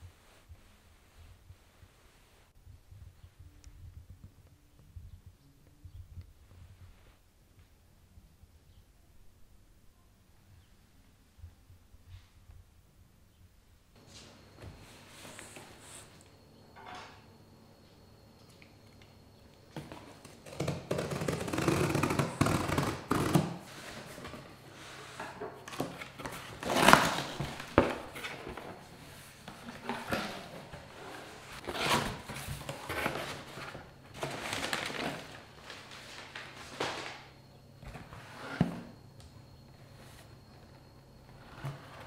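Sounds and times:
paper packing rustling: 19.8s - 38.3s.

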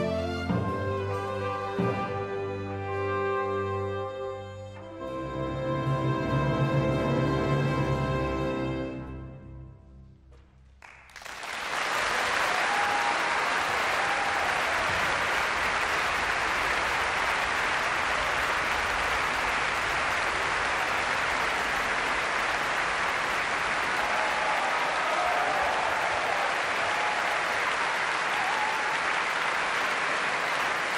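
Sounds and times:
audience applause: 10.8s - 30.9s.

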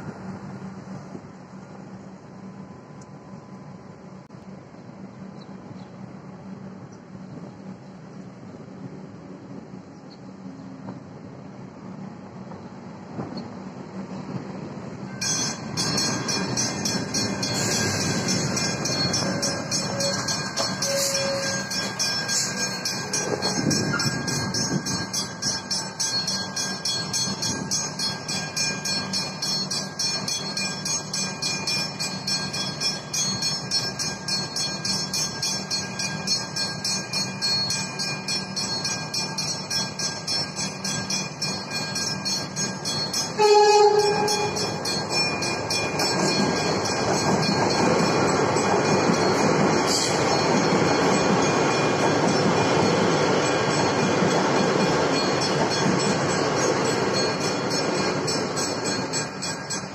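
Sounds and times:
train rolling in: 0.0s - 59.9s
level crossing warning bells: 15.1s - 59.9s
train horn blast: 20.8s - 21.7s, 43.4s - 44.8s.

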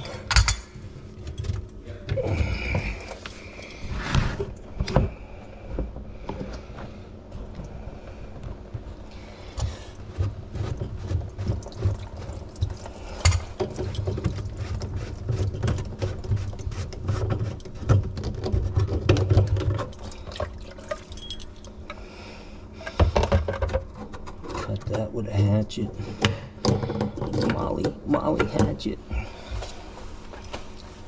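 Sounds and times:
plastic pipe knocks and scrapes: 9.6s - 20.0s.

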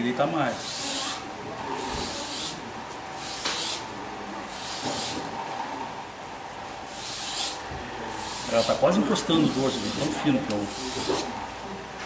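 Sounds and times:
blade rasping on sandpaper: 4.5s - 5.2s, 6.9s - 7.6s, 8.2s - 8.8s, 9.4s - 11.3s.

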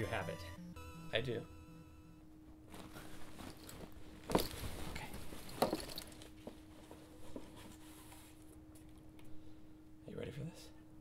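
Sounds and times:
faint steady hum: 0.0s - 11.0s
rustling canvas bag: 2.7s - 8.4s.

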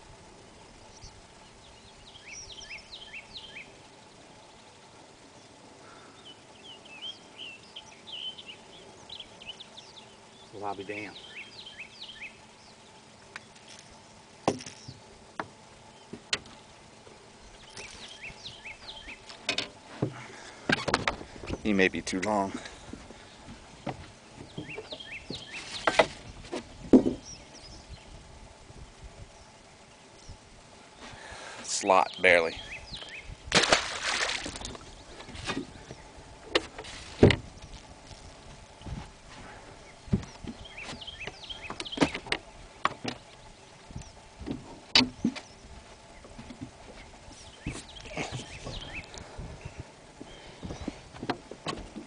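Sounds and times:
faint steady hum: 0.0s - 52.0s
small birds chirping: 0.5s - 52.0s
short knocks: 23.8s - 27.2s
fish splashing into water: 33.5s - 34.8s
sharp knocks and clicks: 41.2s - 43.3s, 44.4s - 45.5s.

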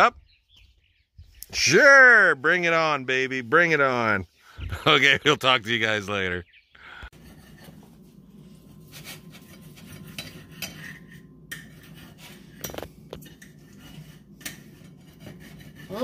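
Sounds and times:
steady low hum: 6.9s - 15.9s
fork scraping ceramic plates: 7.1s - 16.0s.

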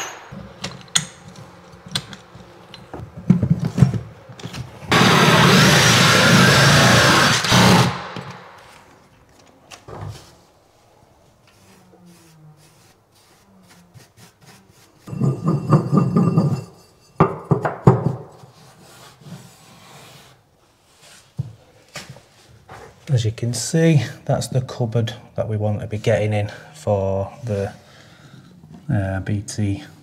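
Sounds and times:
sharp knocks: 0.0s - 1.3s
drill cutting through chipboard: 4.9s - 8.2s.

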